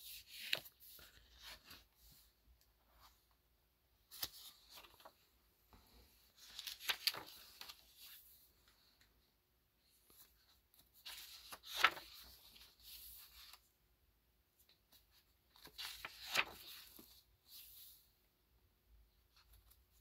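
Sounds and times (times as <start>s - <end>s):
stiff paper rustling: 6.4s - 8.1s, 11.0s - 13.1s, 15.6s - 17.2s.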